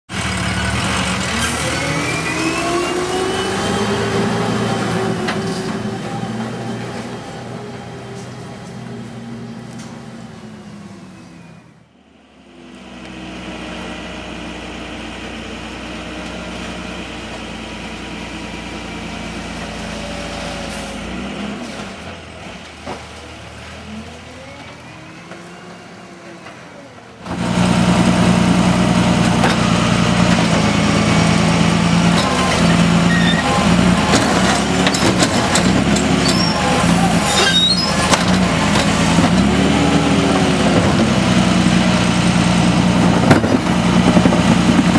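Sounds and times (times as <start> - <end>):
garbage truck engine running: 0.1 - 44.9
clanks and rattles: 33.4 - 39.5.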